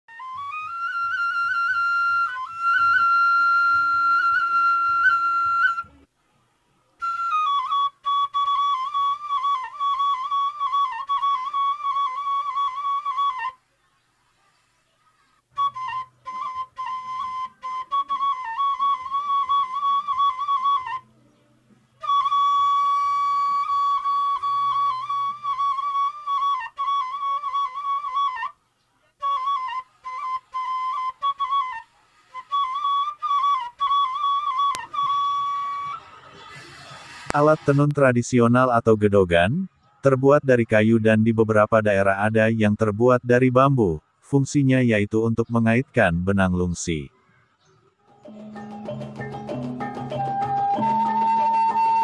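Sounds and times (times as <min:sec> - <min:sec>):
solo flute playing: 0:00.1 - 0:06.1, 0:06.9 - 0:13.6, 0:15.5 - 0:37.8, 0:50.0 - 0:52.0.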